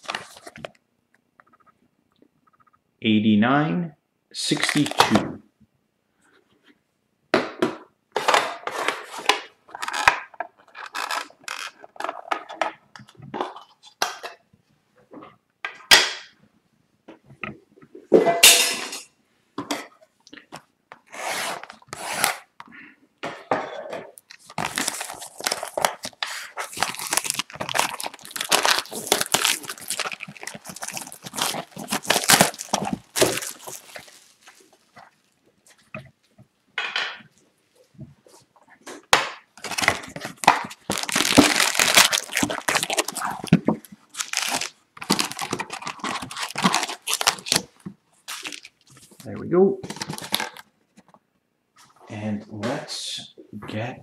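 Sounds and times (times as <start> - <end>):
plastic wrap crinkling and tearing: 0.0 - 0.8, 9.0 - 12.5, 24.2 - 35.9, 39.6 - 50.7.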